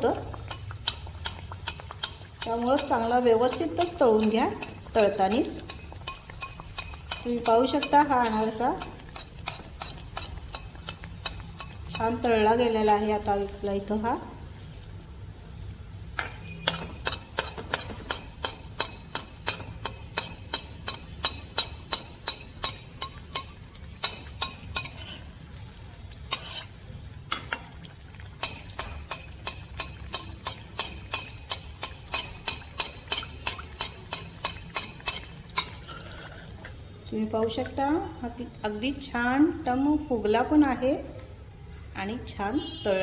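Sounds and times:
spoon tapping metal pan: 0.0 - 13.5, 16.2 - 25.2, 28.3 - 35.8.

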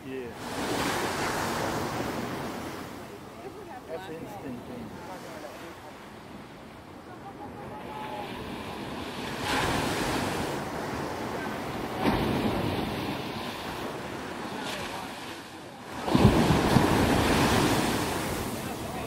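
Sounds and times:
ocean waves breaking on sand: 0.0 - 19.0.

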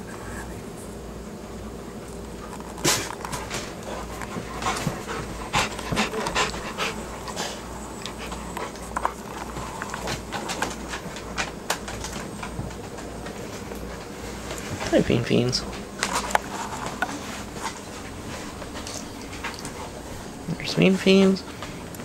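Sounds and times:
dog panting: 3.3 - 14.8, 15.6 - 20.4.

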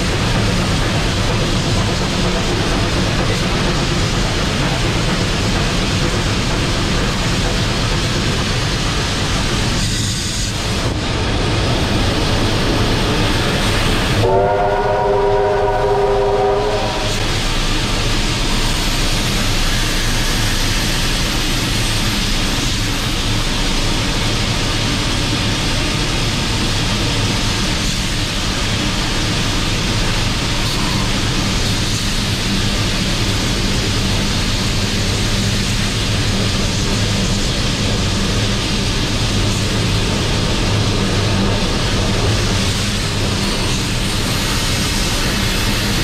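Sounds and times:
steam locomotive rumble and hiss: 0.0 - 46.0
train whistle chord: 14.2 - 17.4.

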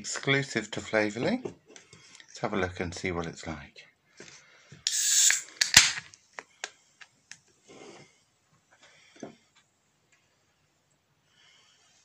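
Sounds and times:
can clicks and knocks: 4.9 - 6.0
beer can cracking open: 4.9 - 6.1.

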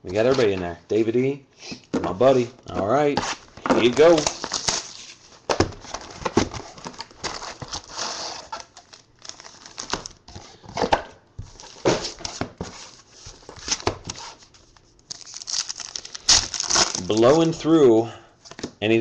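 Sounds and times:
wrappers rustling: 2.3 - 10.6, 11.5 - 17.7.

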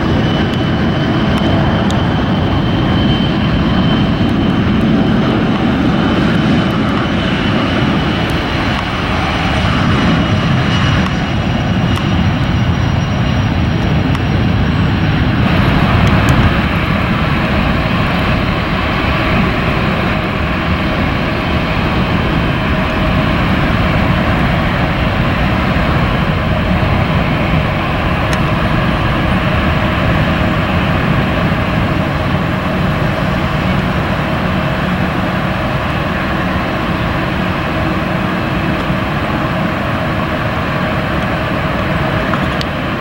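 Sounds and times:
jet engines running: 0.0 - 43.0.

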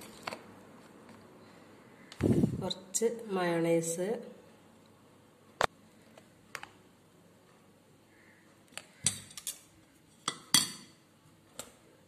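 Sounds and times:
spoon clinking against a dish: 10.3 - 11.0.

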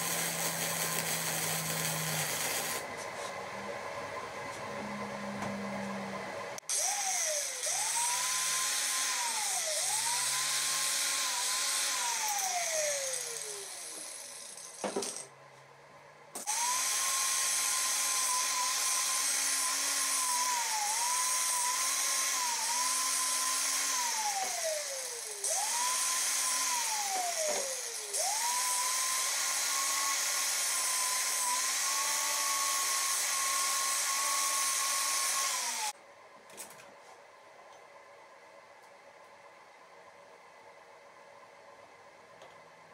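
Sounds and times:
angle grinder whining on metal: 0.0 - 3.3, 4.7 - 14.8, 16.4 - 36.0.

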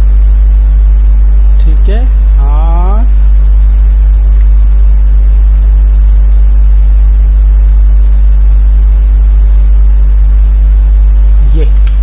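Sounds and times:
low electrical mains hum: 0.0 - 12.0.

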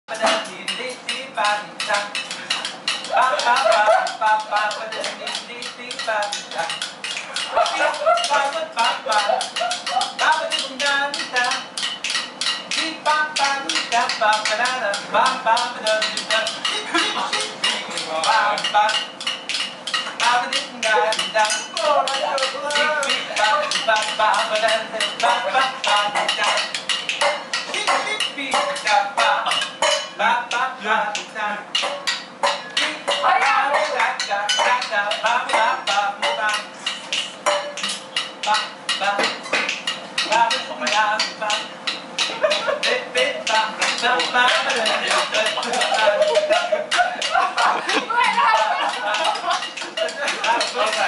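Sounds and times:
metal utensils clanging on woks: 0.1 - 30.3, 31.1 - 51.0
voices calling out: 1.8 - 11.6, 31.7 - 51.0.

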